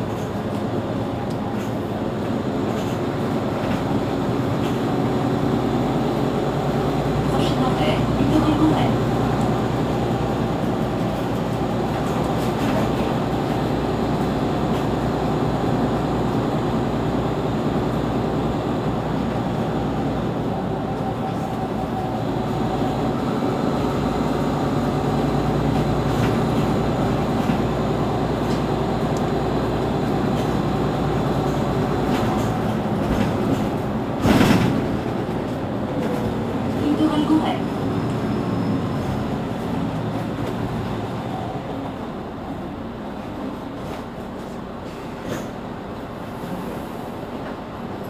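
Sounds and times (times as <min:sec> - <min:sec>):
bus engine idling: 0:00.0 - 0:48.0.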